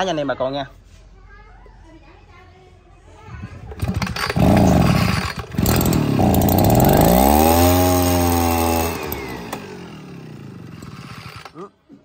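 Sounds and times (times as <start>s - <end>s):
leaf blower two-stroke engine: 3.7s - 11.7s.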